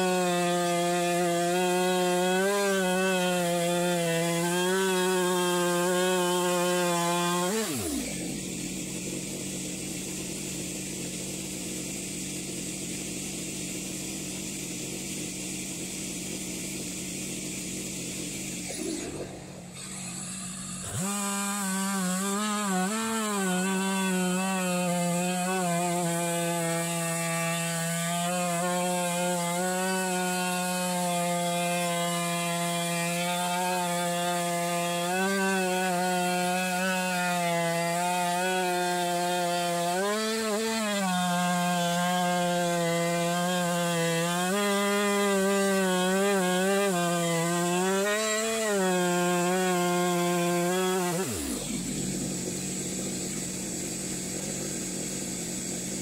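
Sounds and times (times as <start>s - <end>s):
chainsaw cutting log: 0.0s - 56.0s.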